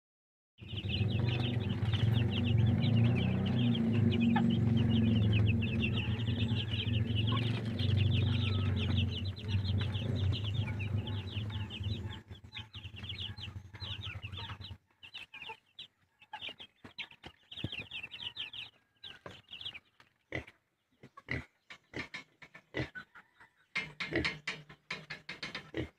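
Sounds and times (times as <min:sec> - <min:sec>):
loud low rumble: 0:00.6 - 0:14.6
chicks peeping: 0:00.6 - 0:25.9.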